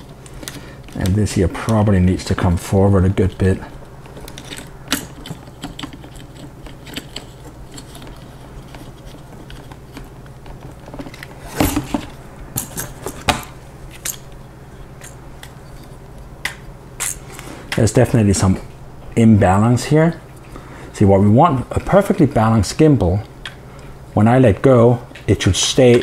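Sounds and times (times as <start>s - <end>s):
clicks and metallic clinks: 4.2s - 8.2s, 12.6s - 14.4s.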